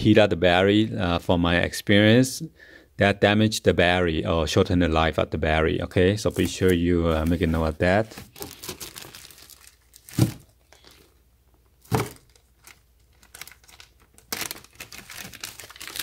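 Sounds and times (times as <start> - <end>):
plastic bag crinkling: 6.3 - 11.1, 11.9 - 16.0.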